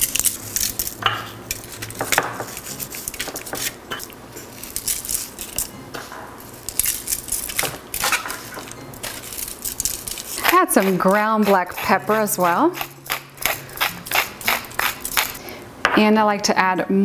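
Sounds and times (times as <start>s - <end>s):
foil rustling: 0.0s - 5.7s, 6.4s - 12.4s.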